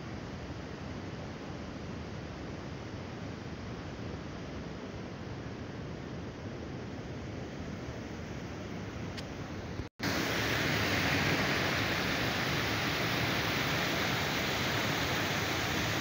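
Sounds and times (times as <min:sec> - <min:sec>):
softer flowing water: 0:10.0 - 0:16.0
water rushing over a weir: 0:10.0 - 0:16.0.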